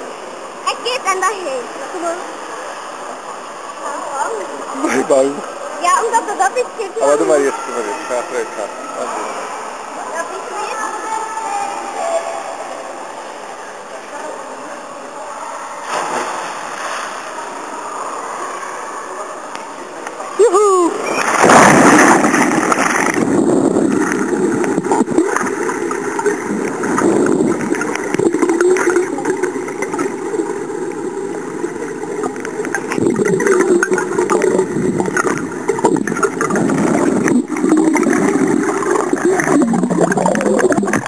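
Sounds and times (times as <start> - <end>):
body splashing into pool: 21.0 - 23.4
underwater rush of bubbles: 21.0 - 41.0.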